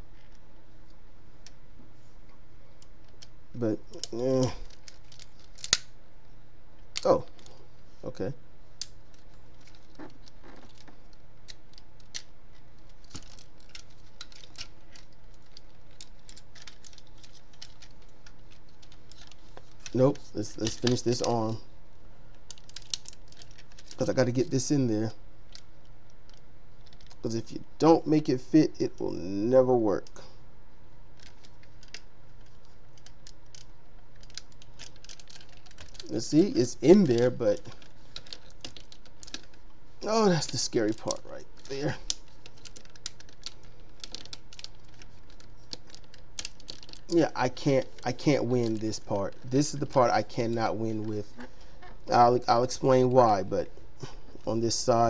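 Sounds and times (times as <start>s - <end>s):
faint low hum: 0.0s - 55.0s
plastic toy parts clicking: 8.8s - 20.0s, 31.2s - 36.1s, 37.8s - 39.6s, 40.4s - 47.1s.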